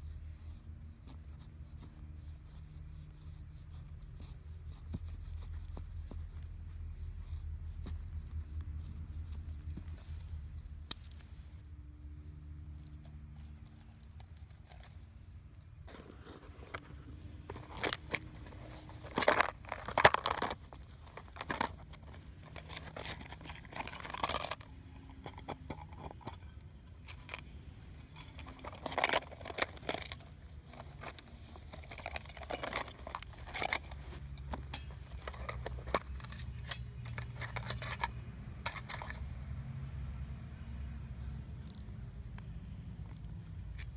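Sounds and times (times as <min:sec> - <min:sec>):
leather pouch rustling: 0:15.8 - 0:26.0, 0:28.1 - 0:36.6
metal tins clicking and scraping: 0:15.9 - 0:39.3.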